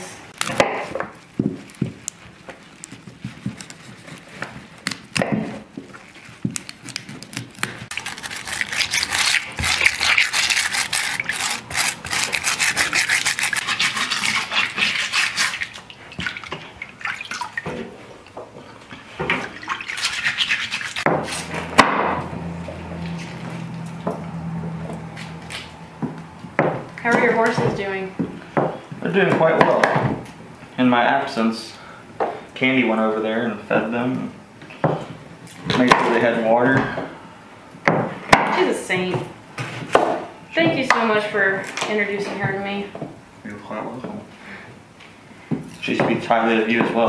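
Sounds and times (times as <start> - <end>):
bristle brush scrubbing in water: 7.9 - 17.6, 19.0 - 21.6.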